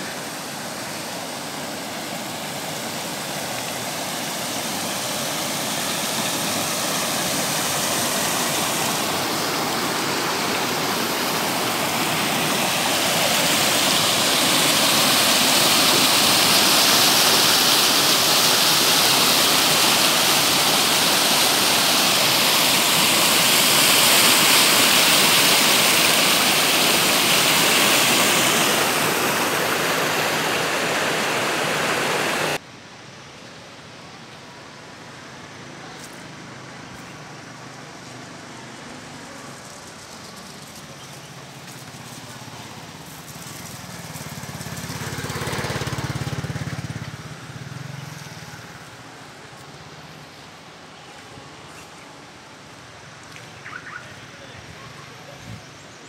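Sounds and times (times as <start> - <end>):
stream rushing over rocks: 0.0 - 32.6.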